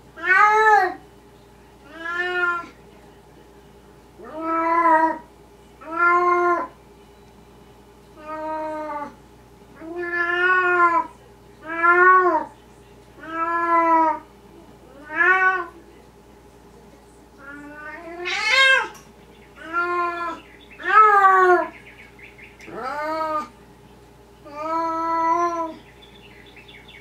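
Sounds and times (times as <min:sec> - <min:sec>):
cat meowing: 0:00.2 - 0:01.0, 0:01.9 - 0:02.8, 0:04.2 - 0:05.2, 0:05.8 - 0:06.7, 0:08.2 - 0:09.2, 0:09.8 - 0:12.5, 0:13.2 - 0:14.2, 0:14.9 - 0:15.8, 0:17.4 - 0:19.0, 0:19.6 - 0:21.7, 0:22.7 - 0:23.5, 0:24.4 - 0:25.8.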